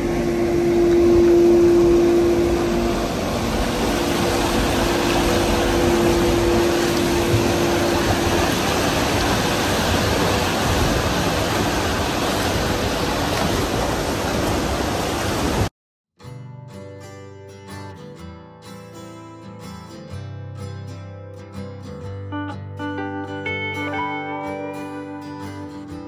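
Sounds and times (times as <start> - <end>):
machine hum: 0.0 - 15.6
water rushing through screw turbine: 0.0 - 15.7
acoustic guitar music: 16.2 - 26.0.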